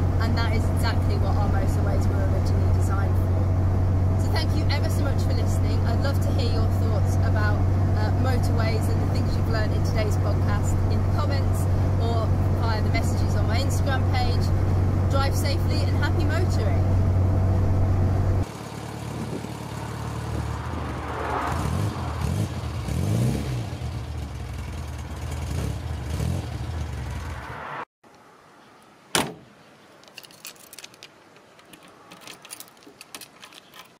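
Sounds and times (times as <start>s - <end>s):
car engine revving: 0.0s - 27.9s
keys jangling at door lock: 30.0s - 34.0s.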